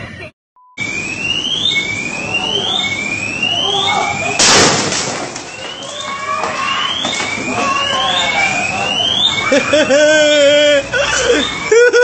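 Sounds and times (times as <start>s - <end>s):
firecracker bang: 4.4s - 5.9s
siren-like rising whoop: 5.5s - 12.0s.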